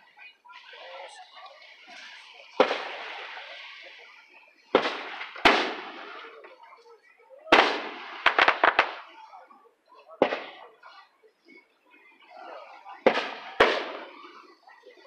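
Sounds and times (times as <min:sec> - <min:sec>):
fireworks booming: 0:02.5 - 0:03.9, 0:04.6 - 0:06.6, 0:07.5 - 0:09.2, 0:10.2 - 0:10.7, 0:13.0 - 0:14.4
fireworks sharp cracks: 0:02.5 - 0:03.9, 0:04.6 - 0:06.6, 0:07.5 - 0:09.2, 0:10.2 - 0:10.7, 0:13.0 - 0:14.4.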